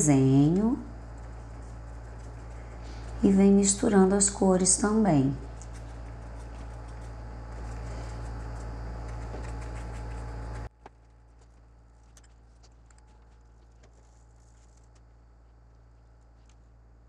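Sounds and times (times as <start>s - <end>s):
steady low hum: 0.0s - 17.0s
paintbrush tapping and scratching: 0.6s - 3.3s, 5.4s - 14.9s.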